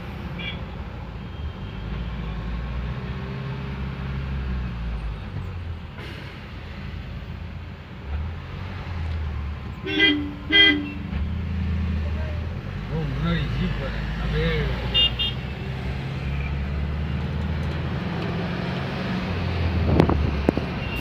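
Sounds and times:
car engine and road noise: 0.0s - 21.0s
car horn honks: 9.8s - 11.1s, 14.9s - 15.5s.

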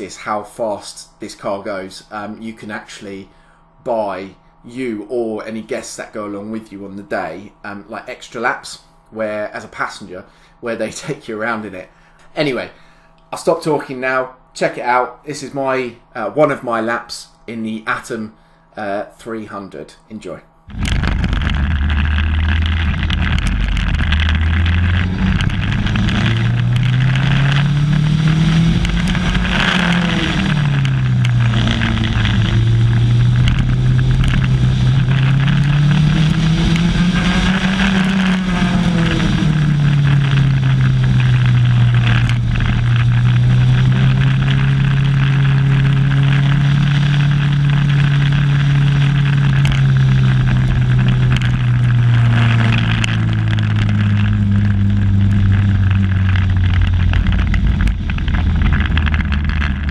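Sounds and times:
race car engine revving: 20.7s - 59.9s
rushing noise: 20.7s - 59.9s.

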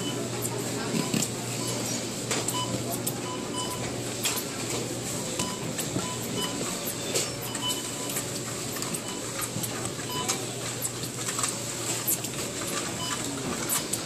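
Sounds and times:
short faint beeps: 2.5s - 3.9s, 7.2s - 8.2s.

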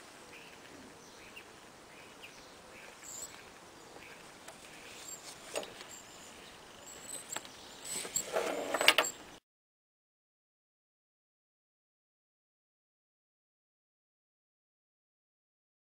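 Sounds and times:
bird chirps: 0.2s - 8.2s
leather belt rustling and clicking: 4.5s - 9.2s.

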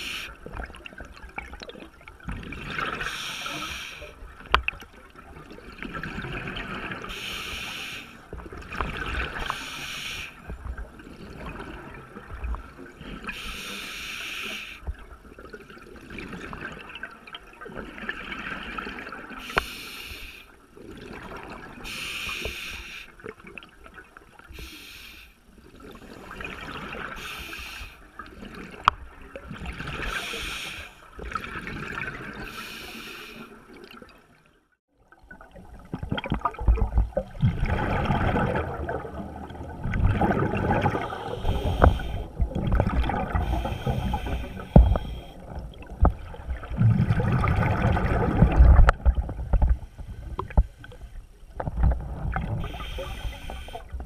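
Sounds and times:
regulator breathing underwater: 0.0s - 0.4s, 2.9s - 4.2s, 7.1s - 8.3s, 9.4s - 10.5s, 13.2s - 14.9s, 19.4s - 20.6s, 21.8s - 23.2s, 24.5s - 25.4s, 27.1s - 28.1s, 29.9s - 31.2s, 32.4s - 33.6s, 40.6s - 45.9s, 52.6s - 54.0s
low rumble of water: 0.0s - 54.0s.

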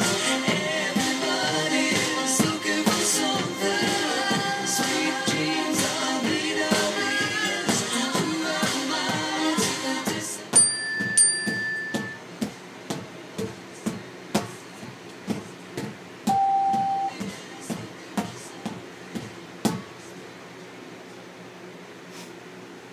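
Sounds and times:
pop song: 0.0s - 12.2s, 16.3s - 20.0s
drumsticks striking fitness balls: 10.5s - 14.6s
held electronic tones: 10.6s - 12.2s, 16.3s - 17.2s.

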